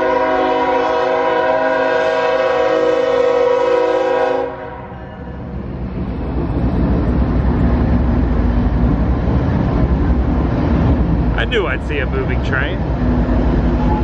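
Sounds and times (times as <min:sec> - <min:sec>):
locomotive air horn chord: 0:00.0 - 0:05.4
train engine and wheels passing: 0:00.0 - 0:14.0.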